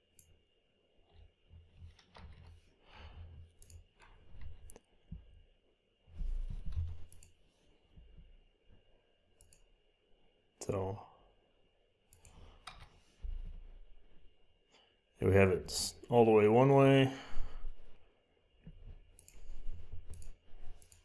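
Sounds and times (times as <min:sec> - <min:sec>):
faint high whine: 0:00.0 - 0:21.0
computer mouse clicks: 0:00.1 - 0:00.4, 0:03.5 - 0:04.9, 0:06.6 - 0:07.4, 0:09.4 - 0:09.7, 0:12.1 - 0:13.0, 0:19.1 - 0:21.0.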